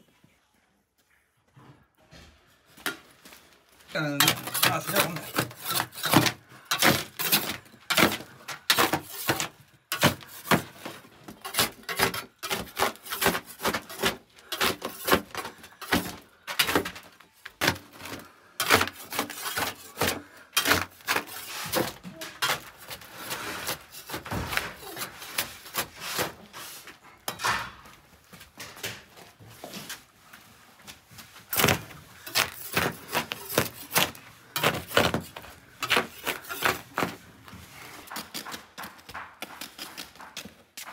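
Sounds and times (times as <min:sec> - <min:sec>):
scraper scraping on clay wall: 0:03.9 - 0:27.0, 0:31.4 - 0:40.9.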